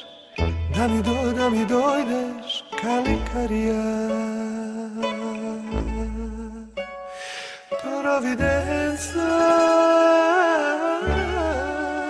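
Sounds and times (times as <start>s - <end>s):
deep bass tone: 0.4s - 1.6s, 3.0s - 4.1s, 5.6s - 7.0s, 8.4s - 9.7s, 11.1s - 11.9s
slow song long held note: 7.7s - 12.0s.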